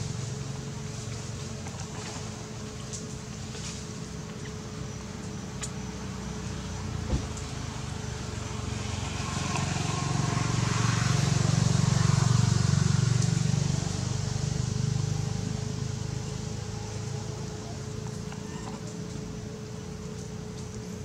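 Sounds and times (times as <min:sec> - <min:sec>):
vehicle passing by: 0:07.0 - 0:17.8.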